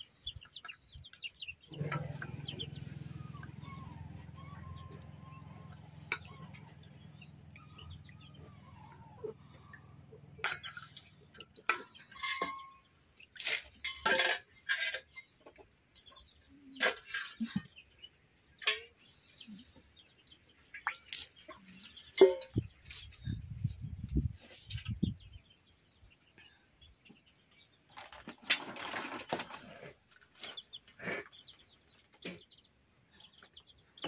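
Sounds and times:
water splashing: 0:01.7 - 0:12.3
steel bowl clattering: 0:04.2 - 0:08.8, 0:09.7 - 0:12.8, 0:13.4 - 0:15.2, 0:22.2 - 0:22.5.

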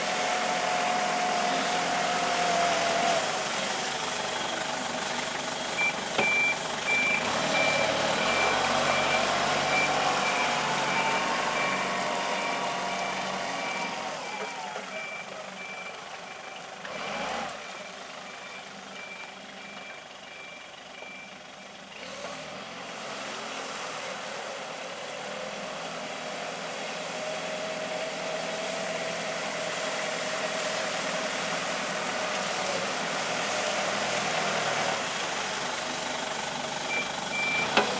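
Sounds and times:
forklift engine running: 0:00.0 - 0:37.9
reversing alarm beeping: 0:05.7 - 0:16.6, 0:17.6 - 0:21.4, 0:36.9 - 0:37.8.

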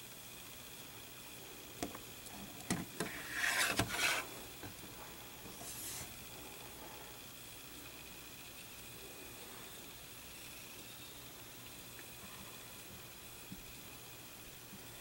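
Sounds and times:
plastic scraping on table: 0:02.7 - 0:04.3.

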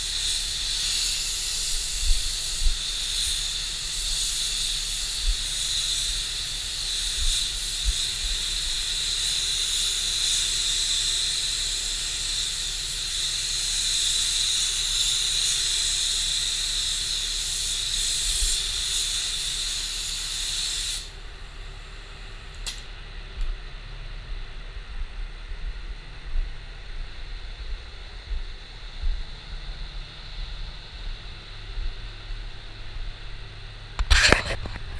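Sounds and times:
spray gun hissing: 0:00.0 - 0:22.6.

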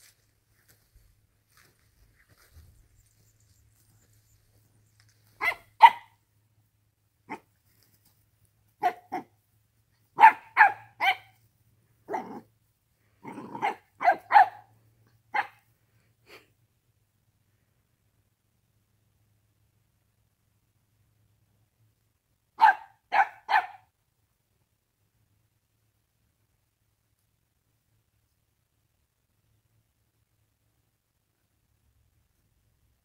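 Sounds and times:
puppy barking: 0:05.4 - 0:06.2, 0:07.3 - 0:07.5, 0:08.8 - 0:09.3, 0:10.2 - 0:11.4, 0:12.1 - 0:12.4, 0:13.2 - 0:14.7, 0:15.3 - 0:15.6, 0:22.6 - 0:23.9.

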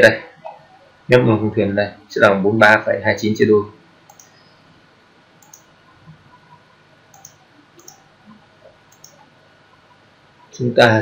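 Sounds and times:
low steady hiss: 0:00.0 - 0:11.0
computer mouse clicks: 0:04.1 - 0:04.4, 0:05.4 - 0:05.7, 0:07.1 - 0:09.2.

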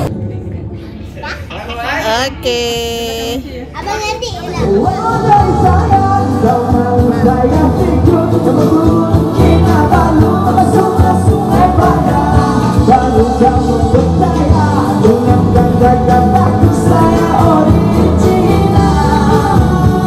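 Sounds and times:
pop-rock song with singing: 0:04.5 - 0:20.0.

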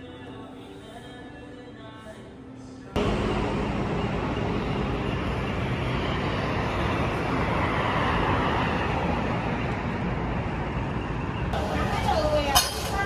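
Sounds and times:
road noise from passing cars: 0:03.0 - 0:13.0.

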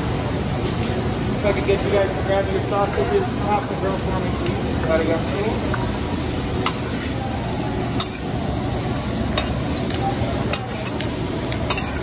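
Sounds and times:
vegetables sizzling on a griddle: 0:00.0 - 0:12.0
metal utensils striking griddle: 0:06.6 - 0:07.0, 0:08.0 - 0:08.3, 0:09.3 - 0:11.0, 0:11.6 - 0:12.0.

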